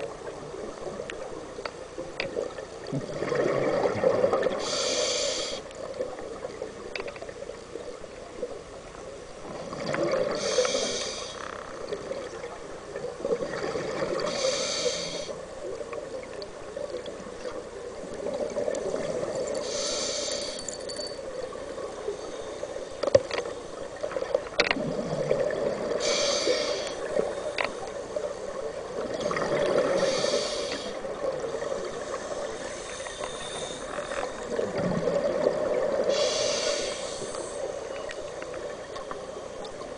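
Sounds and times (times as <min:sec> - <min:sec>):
underwater bubbling: 0:00.0 - 0:39.9
diver breathing through regulator: 0:04.6 - 0:05.7, 0:10.3 - 0:11.6, 0:14.2 - 0:15.4, 0:19.6 - 0:20.8, 0:25.9 - 0:27.5, 0:29.2 - 0:31.0, 0:31.8 - 0:34.4, 0:36.1 - 0:37.7.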